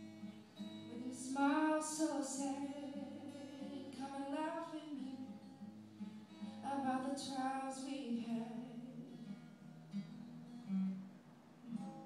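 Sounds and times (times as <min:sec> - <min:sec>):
acoustic guitar: 0:00.0 - 0:12.0
woman singing: 0:00.8 - 0:05.6, 0:06.5 - 0:09.3.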